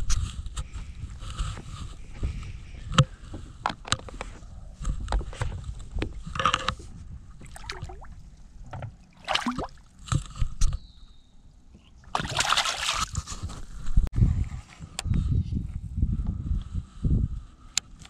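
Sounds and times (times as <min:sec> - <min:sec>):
water splashing and sloshing: 0:05.4 - 0:10.5, 0:12.0 - 0:13.6
water gurgling: 0:09.0 - 0:09.8.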